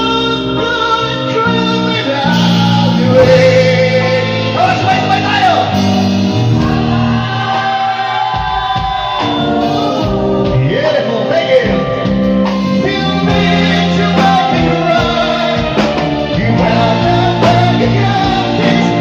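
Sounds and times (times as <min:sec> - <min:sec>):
electric guitar: 0:00.0 - 0:19.0
live rock band playing: 0:00.0 - 0:19.0
person singing long notes: 0:12.6 - 0:19.0.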